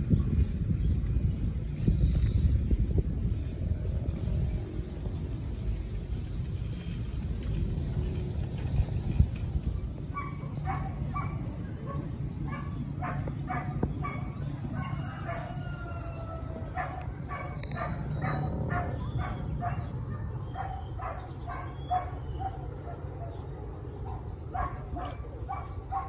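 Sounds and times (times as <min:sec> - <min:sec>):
steady low rumble: 0:00.0 - 0:26.0
distant dogs barking: 0:10.0 - 0:26.0
birds chirping: 0:10.1 - 0:26.0.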